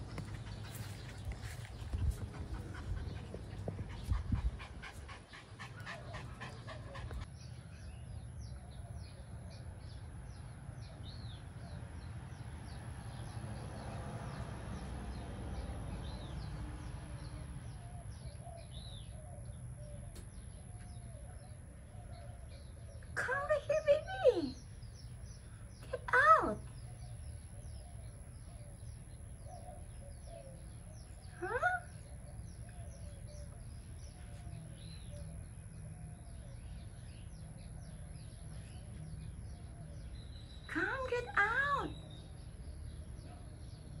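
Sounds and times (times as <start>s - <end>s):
dog sniffing rapidly: 0.0s - 7.3s
small birds chirping: 0.0s - 44.0s.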